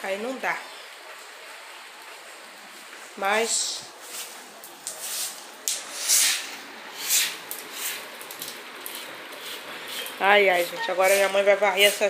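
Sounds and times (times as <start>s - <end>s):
faint steady hiss: 0.0s - 12.0s
broom sweeping wet ground: 3.4s - 12.0s.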